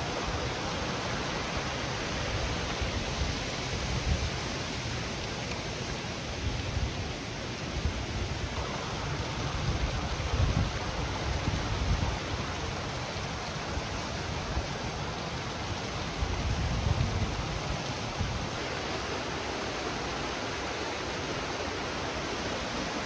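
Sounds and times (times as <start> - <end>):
mountain stream flowing: 0.0 - 23.0
wind buffeting the microphone: 9.2 - 12.7, 16.0 - 18.6.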